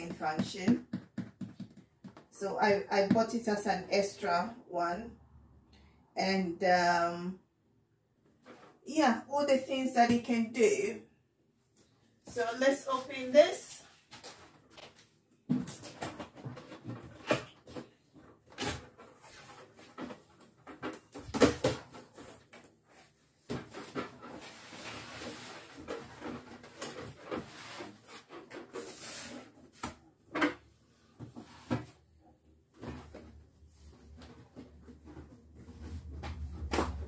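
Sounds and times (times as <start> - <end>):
cardboard and packaging rustling: 13.9 - 29.8.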